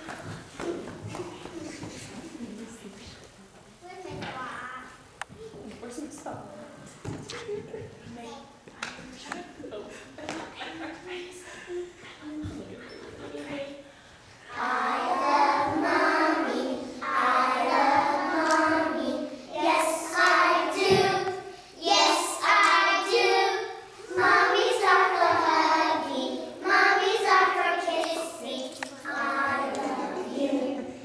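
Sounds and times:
children singing: 14.5s - 31.0s.

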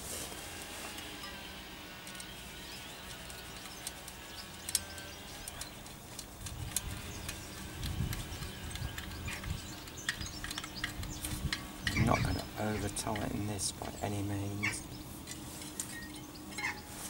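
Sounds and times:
small metallic clicks: 2.0s - 14.0s.

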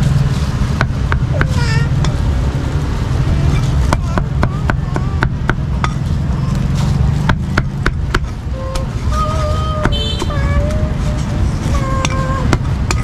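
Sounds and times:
steady low rumble: 0.0s - 13.0s
cleaver chopping on wooden block: 7.2s - 8.3s.

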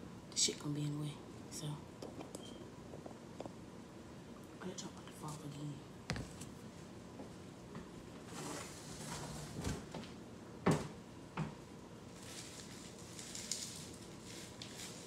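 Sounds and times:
bubble wrap rustling: 12.1s - 15.0s.

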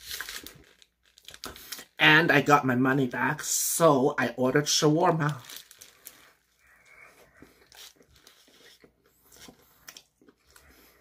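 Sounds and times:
chewing: 6.1s - 11.0s.

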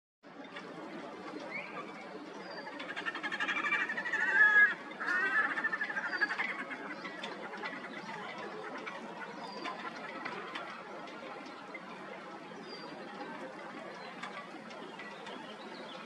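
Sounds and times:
grebes trilling calls: 2.4s - 10.5s.

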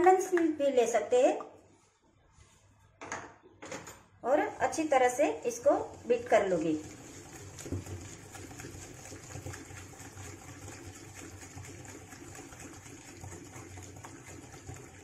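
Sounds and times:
whisk swishing in glass bowl: 4.3s - 15.0s.

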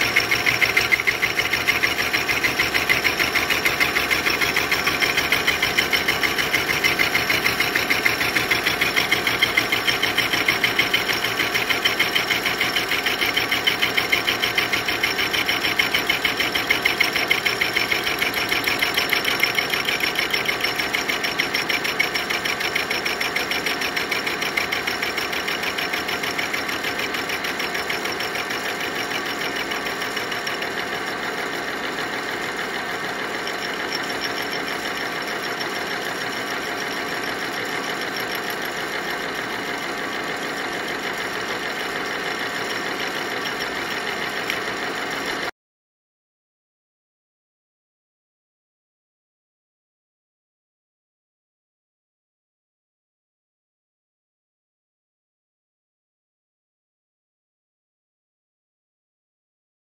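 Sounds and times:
hole saw cutting metal pipe: 0.0s - 45.5s.

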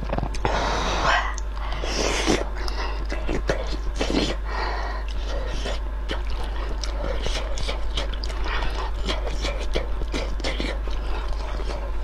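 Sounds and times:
mouth clicks and smacks: 0.0s - 0.5s, 1.3s - 4.4s, 5.0s - 11.9s
chewing: 5.1s - 12.0s.

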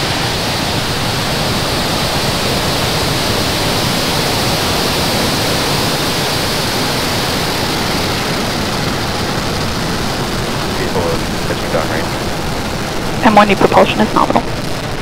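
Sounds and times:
rocket engines roaring: 0.0s - 15.0s.

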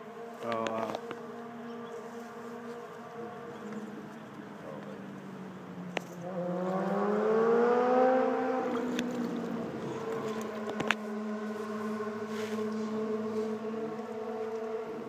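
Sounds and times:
engine steady hum: 0.0s - 15.0s
second engine rising in pitch: 6.2s - 14.6s.

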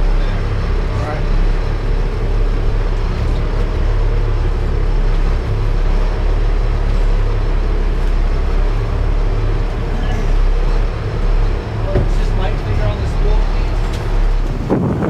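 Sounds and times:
boat engine drone: 0.0s - 15.0s.

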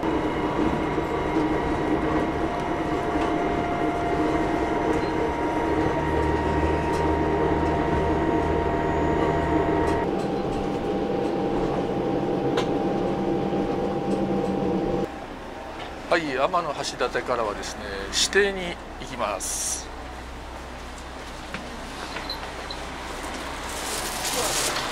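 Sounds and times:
mechanical hum: 0.0s - 15.7s
railcar engine and wheels rumbling: 0.0s - 24.9s.

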